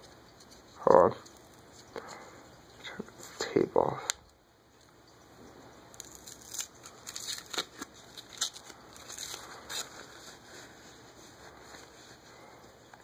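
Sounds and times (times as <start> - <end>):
paper towel rustling and crinkling: 6.8 - 13.0.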